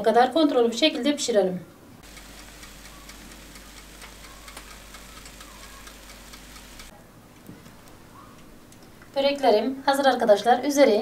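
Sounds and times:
faint ticking and crackling: 2.0s - 6.9s
oven humming: 2.0s - 6.9s.

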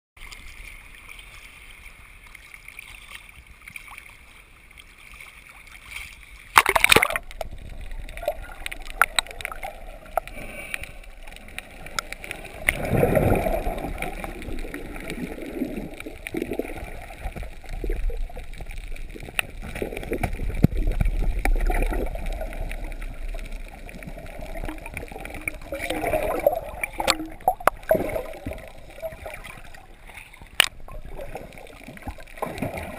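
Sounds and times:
sea water at surface: 0.2s - 32.9s
underwater sloshing and gurgling: 0.2s - 32.9s
loud splash: 6.5s - 7.4s.

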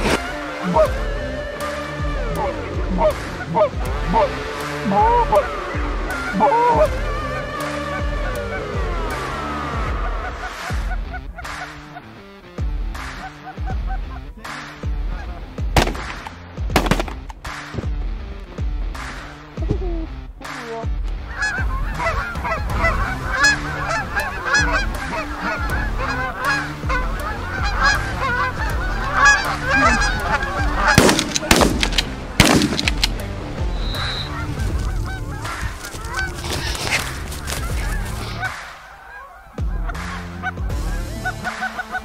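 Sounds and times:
geese honking: 0.0s - 16.0s, 20.4s - 42.0s.

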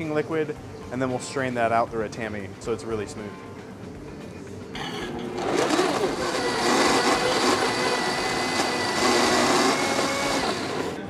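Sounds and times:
blender running with high whine: 5.4s - 11.0s.

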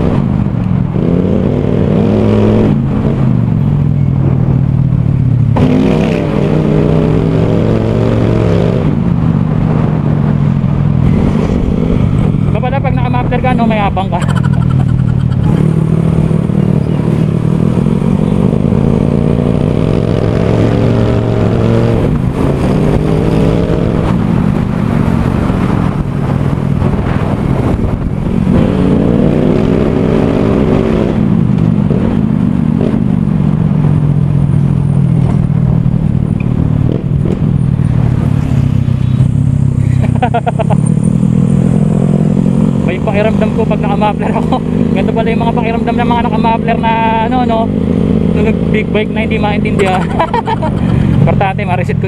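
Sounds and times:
scooter engine accelerating: 14.1s - 33.2s, 33.8s - 51.4s.

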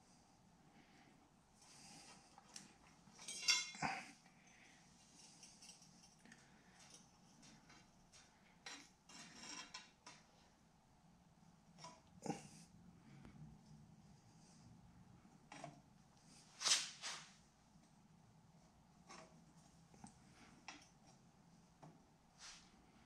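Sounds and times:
metal clinks and scrapes: 3.1s - 4.0s, 5.0s - 7.9s.

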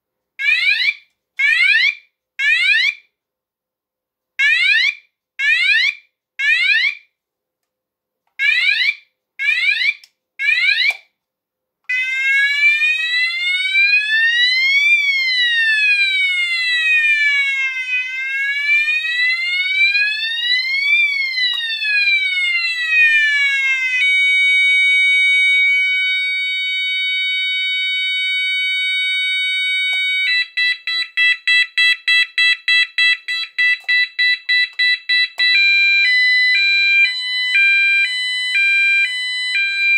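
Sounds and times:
fire alarm sounder tones: 11.9s - 39.9s.

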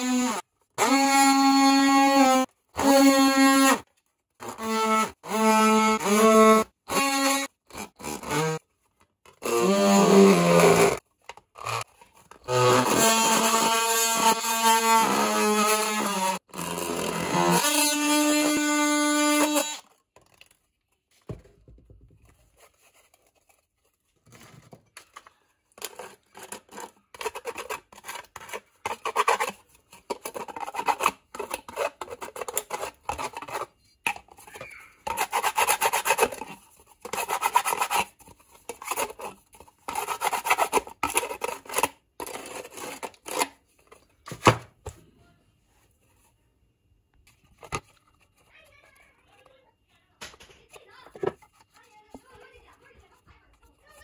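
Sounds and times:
multi-tool buzzing: 0.0s - 8.6s, 9.3s - 11.0s, 11.6s - 19.9s.

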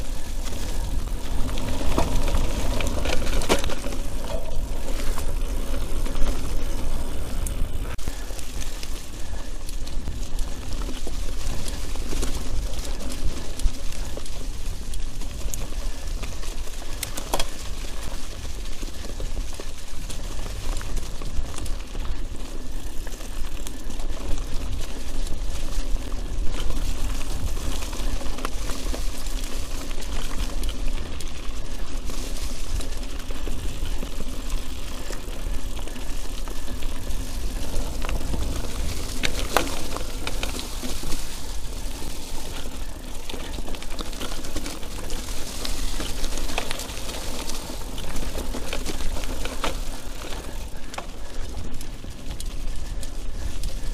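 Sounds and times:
bike rattling and clicking: 0.0s - 53.9s
tyres rolling over mud: 0.0s - 53.9s
wind rumble on microphone: 0.0s - 53.9s.

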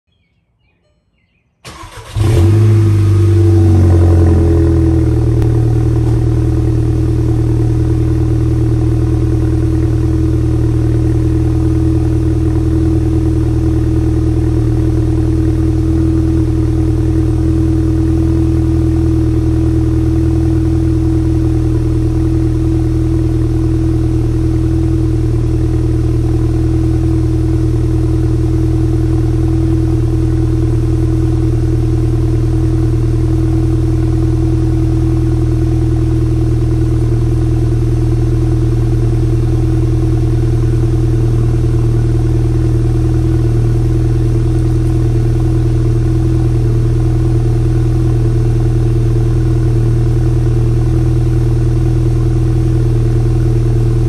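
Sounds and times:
engine cranking: 1.6s - 2.7s
car engine idling: 1.6s - 54.0s.

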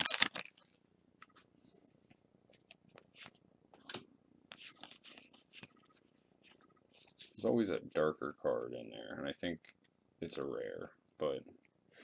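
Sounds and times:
trading cards clicking and rustling: 0.0s - 0.6s
foil wrapper crinkling: 0.0s - 0.8s.

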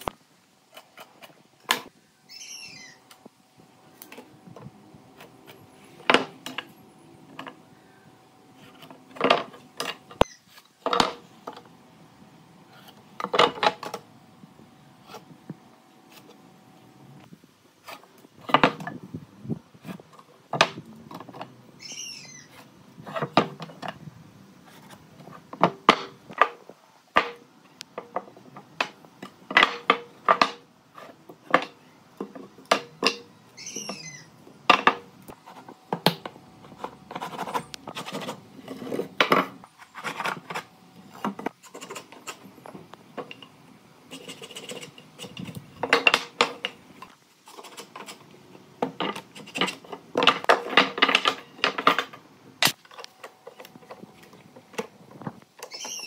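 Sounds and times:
bird chirping: 2.2s - 3.1s, 10.2s - 10.5s, 21.8s - 22.6s, 33.5s - 34.4s, 55.6s - 56.0s.

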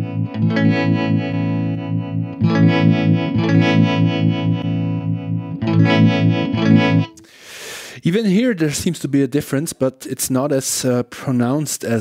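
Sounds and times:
electric guitar chords with tremolo: 0.0s - 7.3s.

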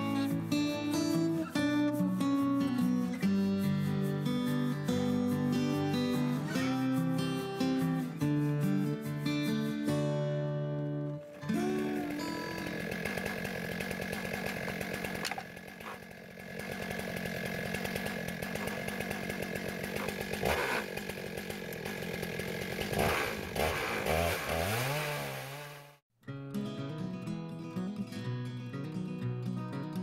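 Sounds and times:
chainsaw cutting log: 11.2s - 26.0s.

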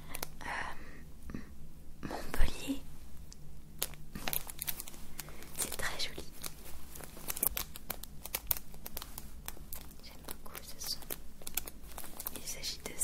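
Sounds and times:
crinkling and crackling: 0.0s - 0.4s, 3.2s - 13.0s.

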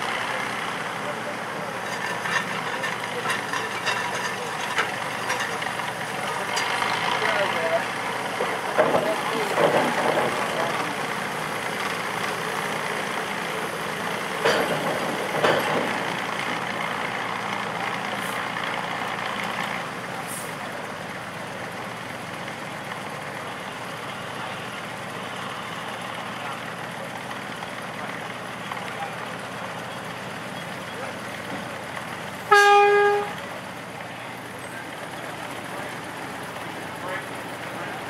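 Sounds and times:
rail motorcar engine running: 0.0s - 38.0s
clunks: 1.8s - 7.2s, 8.4s - 10.8s, 14.4s - 16.2s.

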